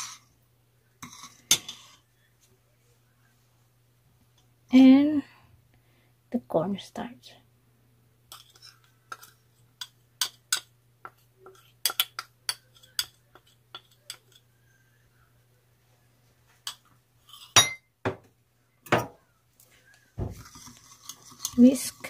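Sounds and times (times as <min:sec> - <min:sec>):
whisk stirring sauce: 0:08.3 - 0:14.5, 0:20.4 - 0:22.0
spoon clinking on ceramic bowl: 0:16.7 - 0:17.9.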